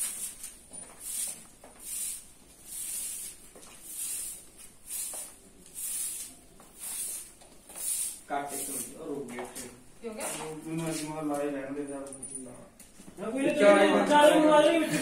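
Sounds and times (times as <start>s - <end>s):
broom sweeping concrete floor: 0.0s - 11.2s.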